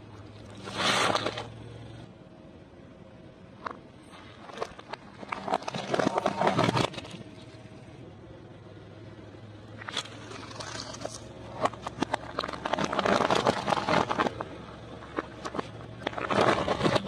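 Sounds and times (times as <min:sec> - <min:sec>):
car engine idling: 0:00.0 - 0:17.0
rubber glove crackling and popping: 0:09.8 - 0:17.0.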